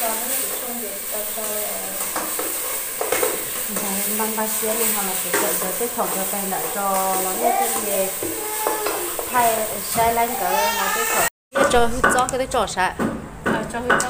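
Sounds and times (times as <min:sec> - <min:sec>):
person talking: 0:03.7 - 0:14.0.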